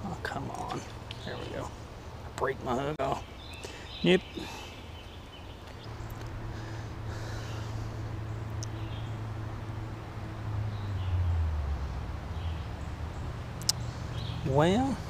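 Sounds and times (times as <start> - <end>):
low steady rumble: 0.0 - 15.0.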